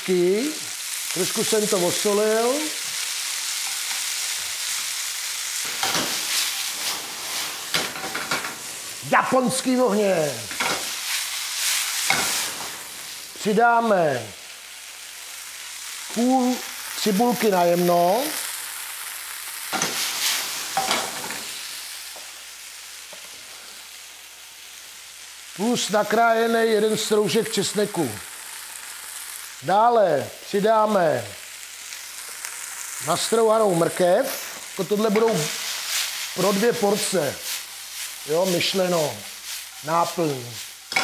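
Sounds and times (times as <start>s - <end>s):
chicken sizzling in hot oil: 0.0s - 41.0s
spatula scraping and knocking pan: 5.6s - 8.7s, 12.0s - 12.7s, 40.8s - 41.0s.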